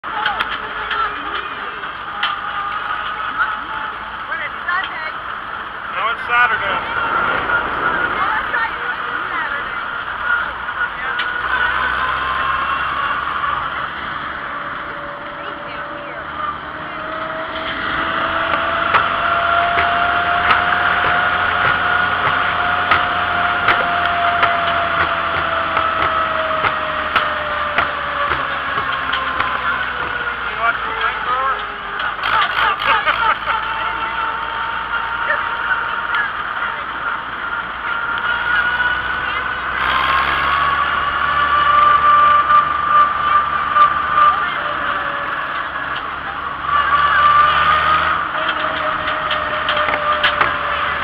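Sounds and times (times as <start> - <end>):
steady whine: 0.0 - 51.0
tractor engine running: 0.0 - 51.0
rushing noise: 4.0 - 32.2.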